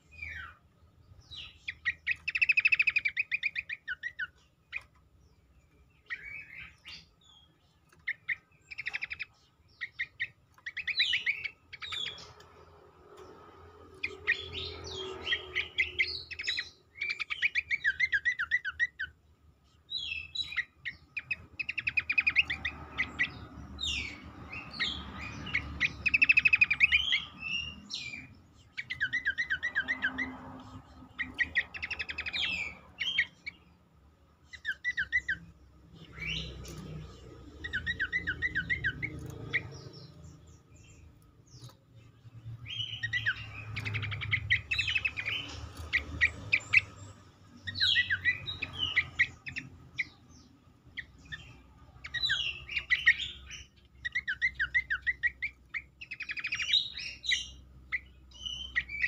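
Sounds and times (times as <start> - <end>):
bird singing high chattering notes: 0.0 - 59.0.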